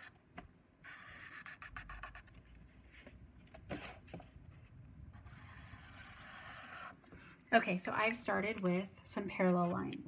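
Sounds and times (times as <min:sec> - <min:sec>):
marker rubbing on paper: 0:00.8 - 0:02.3, 0:05.2 - 0:07.0.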